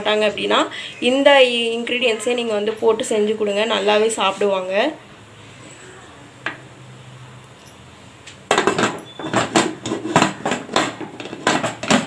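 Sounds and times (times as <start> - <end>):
metallic clattering and knocking: 8.5 - 12.0.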